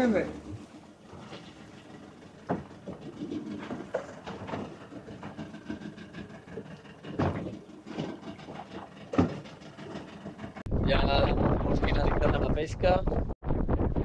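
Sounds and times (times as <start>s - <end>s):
water sloshing against boat hull: 0.0s - 10.7s
hollow knocks on hull: 0.6s - 10.6s.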